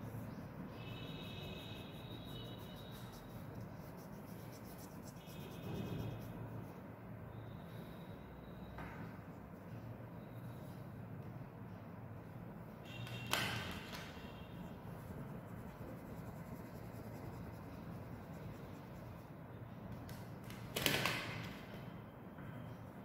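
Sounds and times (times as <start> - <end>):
oil pastel scratching on paper: 0.0 - 6.8, 14.8 - 19.3
steady background noise: 0.0 - 23.0.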